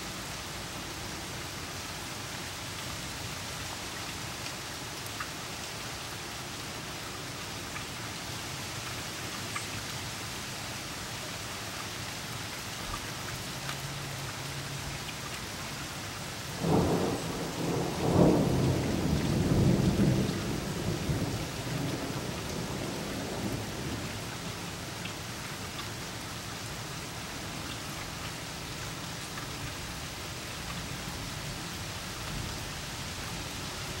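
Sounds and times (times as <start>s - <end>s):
steady rain falling: 0.0s - 34.0s
thunder rumbling: 16.6s - 23.6s.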